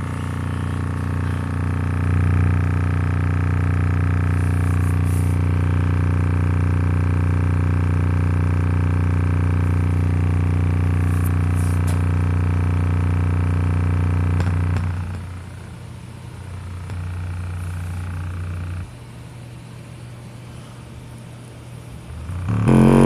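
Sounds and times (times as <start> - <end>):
buzzing overtones: 0.0 - 5.7, 22.1 - 23.0
speaker playing low bass tone: 0.0 - 15.4, 22.2 - 23.0.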